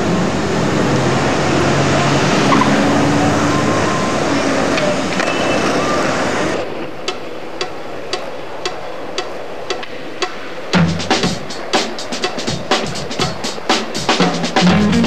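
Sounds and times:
city street traffic: 0.0 - 15.0
sparse clicking music beat: 7.0 - 15.0.

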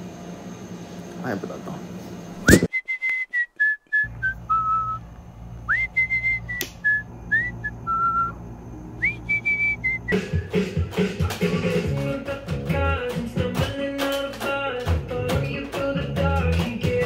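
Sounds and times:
sharp click: 2.4 - 2.7
person whistling a tune: 2.4 - 5.0, 5.7 - 8.4, 9.0 - 10.8
low steady hum: 4.1 - 10.1
music: 10.1 - 17.0.

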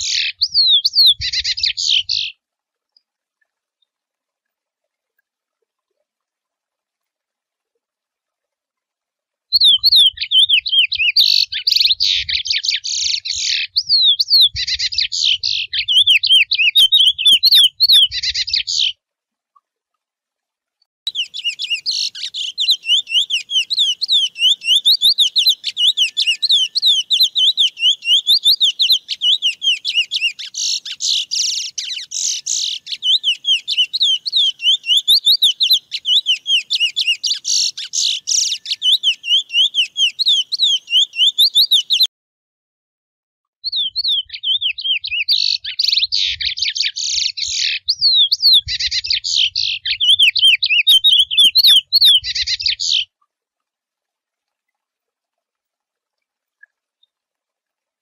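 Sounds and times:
finch singing warble: 0.0 - 2.4, 9.5 - 18.9, 21.1 - 42.1, 43.7 - 53.1.

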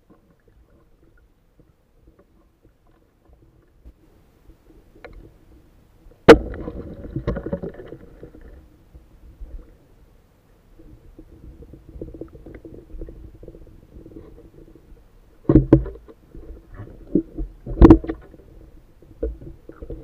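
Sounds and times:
underwater knocking and rumbling: 6.2 - 9.8, 10.8 - 20.0.

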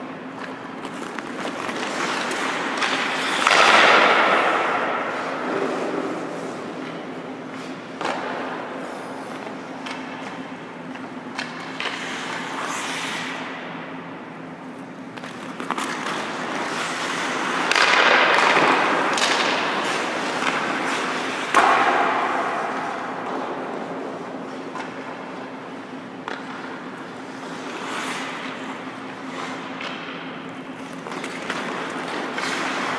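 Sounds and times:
steady low hum: 0.0 - 32.9
hockey sticks and pucks clicking: 0.3 - 32.9
skates scraping on ice: 0.3 - 32.9.

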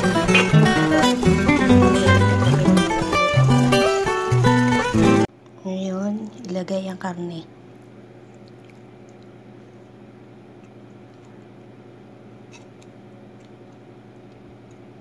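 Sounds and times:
steady low hum: 0.0 - 15.0
soft squishes of sauce: 7.8 - 10.0, 10.6 - 11.5.

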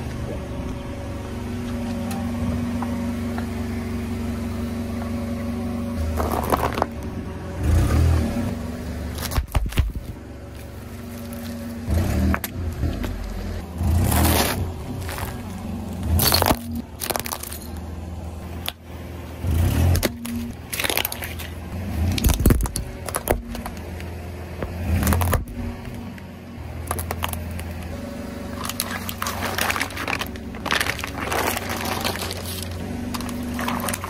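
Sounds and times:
car engine hum: 0.0 - 34.0
tyre crushing plastic objects: 6.0 - 7.0, 9.2 - 11.6, 14.1 - 15.5, 16.1 - 17.8, 19.9 - 23.9, 24.6 - 25.6, 26.8 - 27.9, 28.5 - 34.0.

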